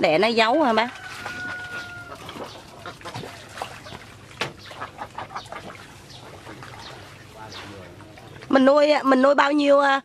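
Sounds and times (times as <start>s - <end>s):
ducks quacking: 1.3s - 8.5s.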